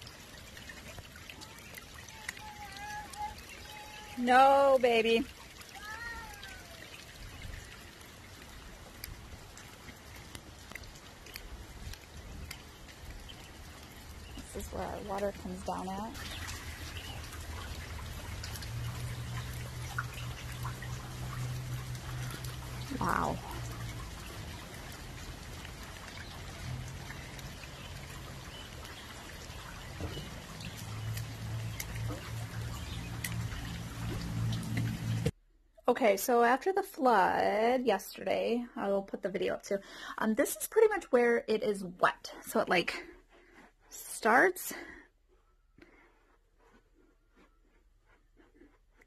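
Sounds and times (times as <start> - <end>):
rain falling on wet pavement: 0.0 - 35.3
raindrops ticking: 0.0 - 35.4.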